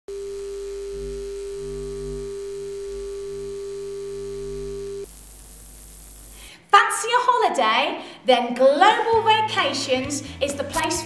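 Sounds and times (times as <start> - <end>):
synthesized electronic drone: 0.1 - 6.4
low hum: 0.1 - 6.5
faint hiss: 5.0 - 6.7.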